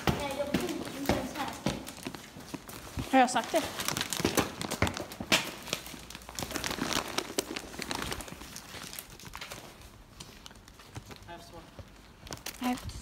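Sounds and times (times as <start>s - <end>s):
footsteps on pavement: 0.0s - 6.0s.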